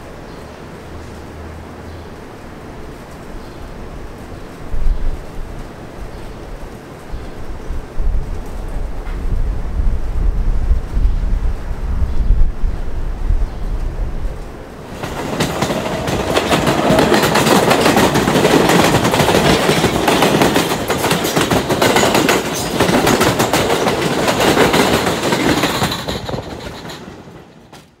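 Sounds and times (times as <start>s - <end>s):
train rumbling on elevated track: 0.0s - 28.0s
wind buffeting microphone: 2.9s - 27.4s
wheel clatter over rail joints: 14.8s - 28.0s.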